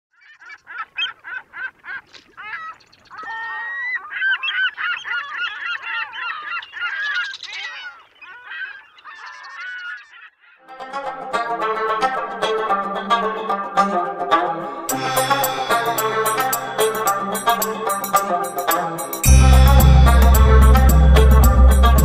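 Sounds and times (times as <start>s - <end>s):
flock of birds calling: 0.2s - 10.6s.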